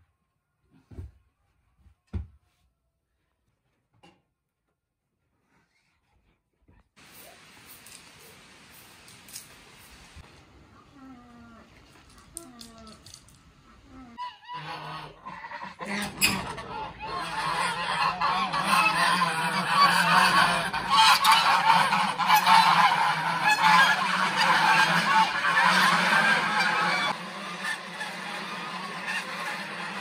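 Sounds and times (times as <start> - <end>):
geese honking: 14.2 - 30.0.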